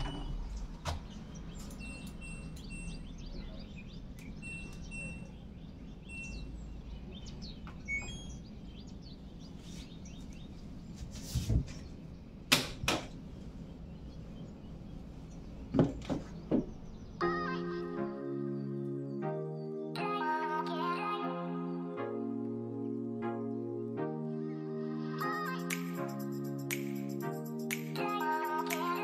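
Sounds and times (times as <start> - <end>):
birds chirping: 0.0 - 20.6.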